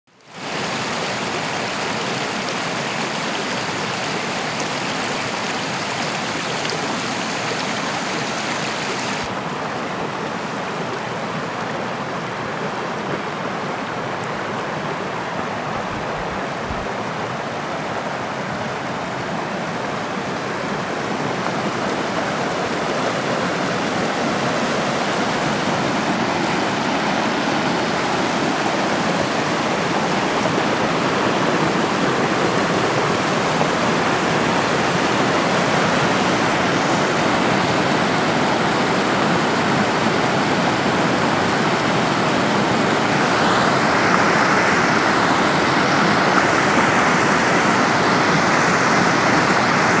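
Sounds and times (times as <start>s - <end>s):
stream rushing over rocks: 0.1s - 50.0s.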